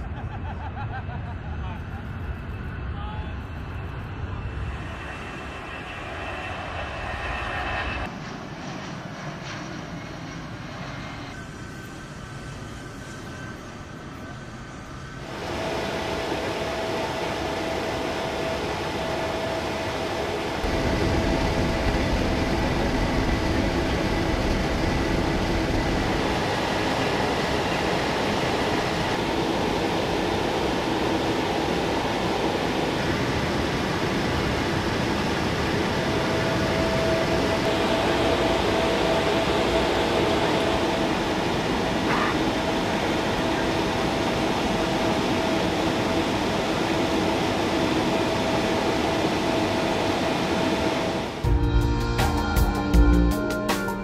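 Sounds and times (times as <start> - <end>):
aircraft engine drone and air rush: 0.0 - 54.0.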